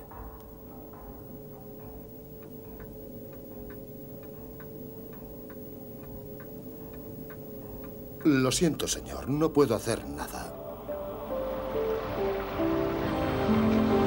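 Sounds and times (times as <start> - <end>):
regular ticking: 0.0 - 10.8
two-note hum: 10.5 - 14.0.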